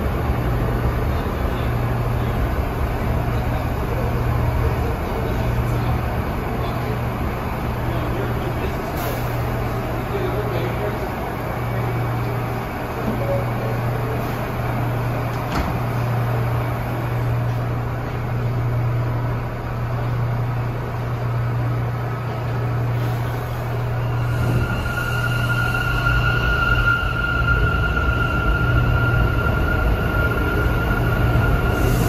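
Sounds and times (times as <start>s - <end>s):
high-pitched train whine: 0.0s - 32.0s.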